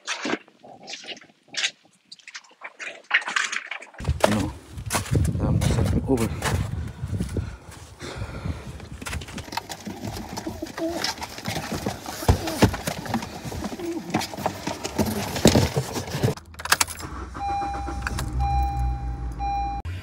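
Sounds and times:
cardboard boxes knocking and scraping: 8.9s - 16.4s
pigeons cooing: 9.8s - 14.3s.

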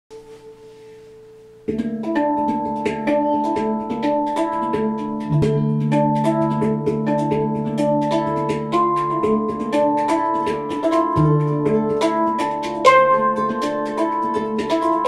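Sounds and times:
handpan notes: 0.1s - 15.0s
plucked acoustic guitar: 1.7s - 15.0s
deep bass guitar note: 5.3s - 9.5s.

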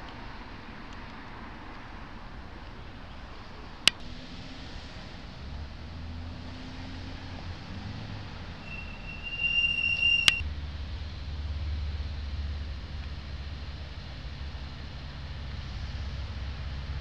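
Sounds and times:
street traffic rumbling: 0.0s - 17.0s
high steady squeal: 6.9s - 10.4s
sharp click: 10.0s - 10.4s.

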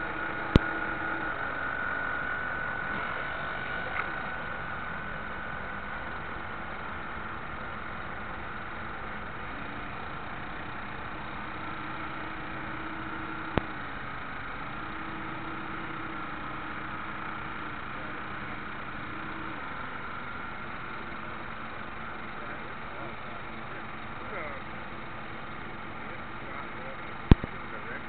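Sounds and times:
drive motor whine: 0.0s - 28.0s
low hum: 0.0s - 28.0s
sharp click: 27.3s - 27.5s.

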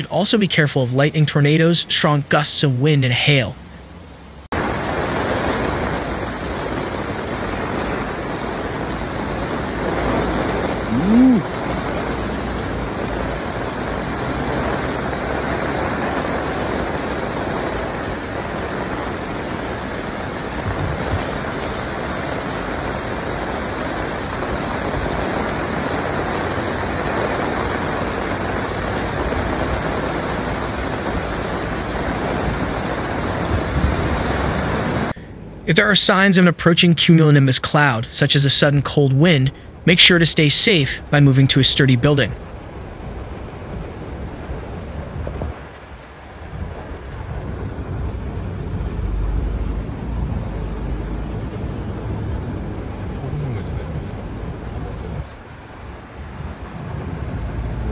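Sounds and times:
heavy rain pouring: 4.4s - 35.2s, 37.8s - 57.9s
floodwater rushing: 4.5s - 35.2s, 37.6s - 57.9s.

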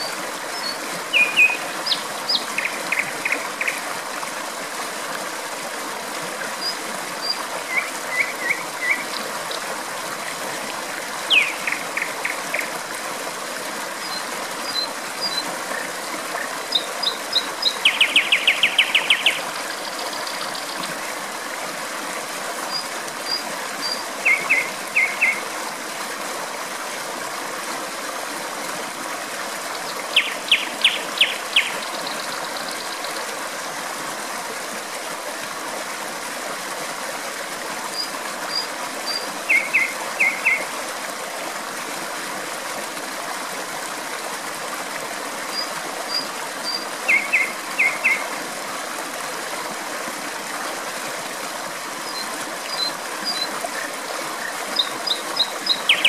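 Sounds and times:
water rushing: 0.0s - 56.0s
nightingale singing: 0.6s - 3.7s, 11.3s - 12.1s, 16.7s - 20.7s, 23.8s - 25.4s, 30.1s - 33.0s, 39.1s - 40.6s, 46.7s - 48.2s, 54.8s - 56.0s.

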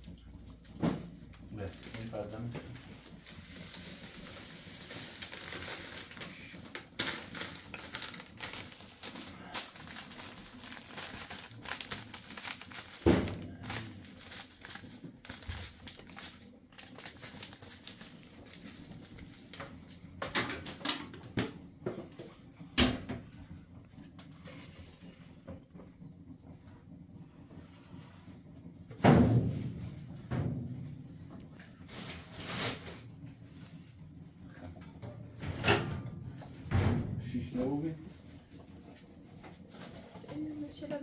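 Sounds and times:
foil bag crinkling: 1.5s - 19.8s.

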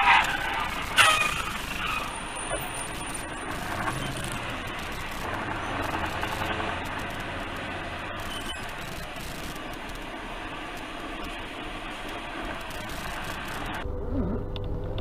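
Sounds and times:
vehicle engine and tyre noise: 0.0s - 15.0s.

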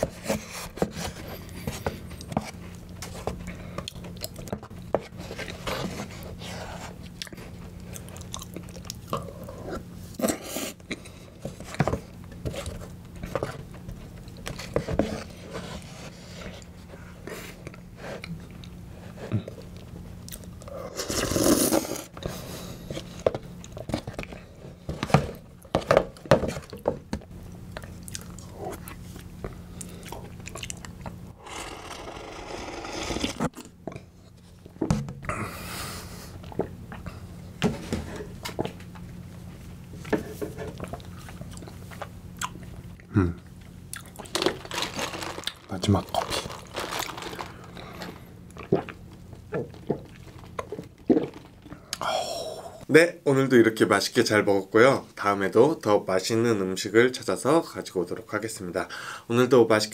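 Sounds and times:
chewing and wet mouth sounds: 7.0s - 9.4s, 27.7s - 31.2s, 40.8s - 44.4s, 46.2s - 52.1s
spoon scraping plastic tub: 31.4s - 33.6s.

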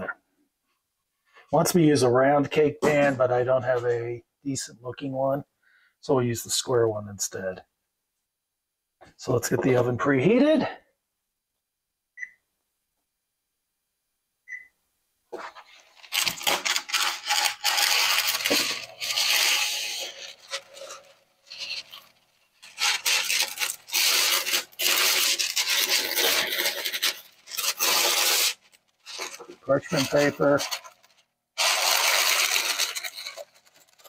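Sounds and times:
short keypad beeps: 12.2s - 12.4s, 14.5s - 14.7s
parchment paper rustling: 15.4s - 34.0s.

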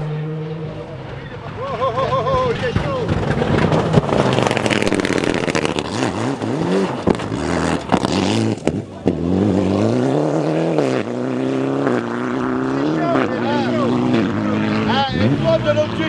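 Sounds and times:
rally car engine revving: 0.0s - 16.0s.

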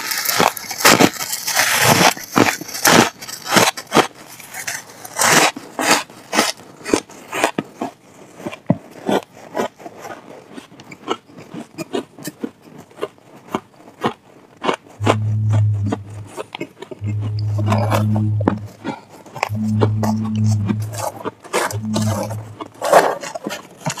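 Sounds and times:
person chewing ice: 10.5s - 15.0s.

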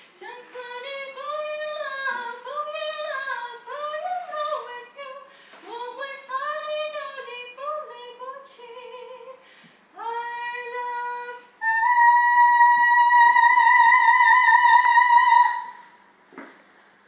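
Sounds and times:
woman singing opera: 0.1s - 9.4s, 10.0s - 15.9s.

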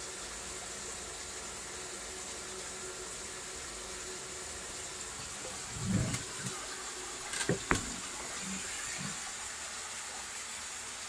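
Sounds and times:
dull knocks: 7.4s - 8.1s.

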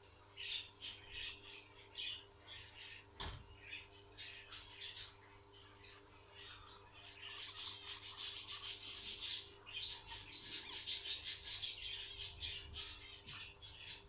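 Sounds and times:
guinea pig squeaks: 3.6s - 14.0s
guinea pig rustling in straw: 7.2s - 13.0s.

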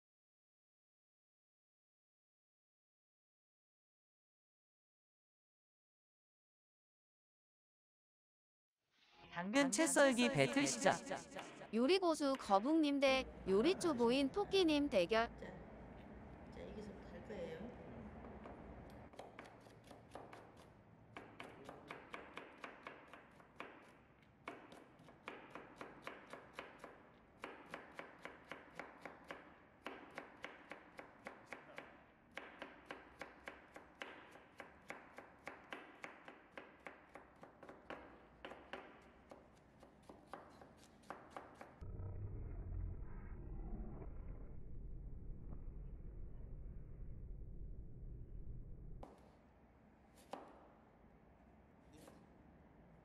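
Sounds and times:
knife tapping on cutting board: 24.5s - 41.7s.

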